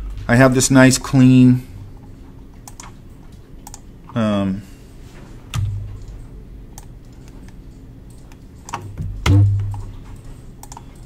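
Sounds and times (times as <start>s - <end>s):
keyboard and mouse clicks: 2.5s - 3.9s, 5.5s - 11.0s
heavy thump: 9.0s - 9.8s.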